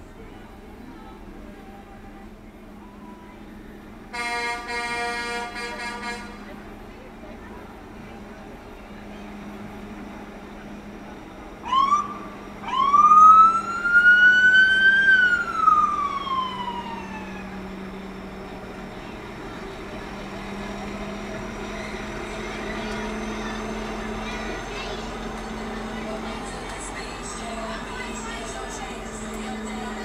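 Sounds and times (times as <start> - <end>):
siren chirp and wail: 11.6 - 17.8.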